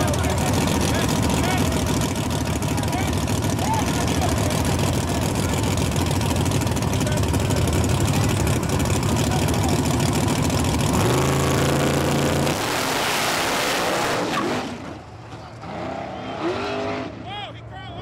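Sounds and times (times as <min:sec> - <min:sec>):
race car engines revving: 0:00.0 - 0:18.0
cars accelerating away: 0:09.4 - 0:17.2.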